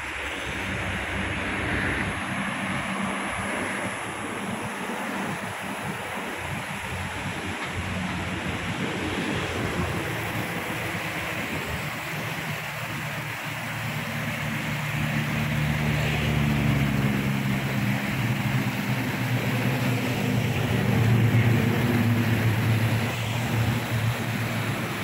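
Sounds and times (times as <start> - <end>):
road traffic engine hum: 0.0 - 25.0
water rushing into foam: 0.0 - 25.0.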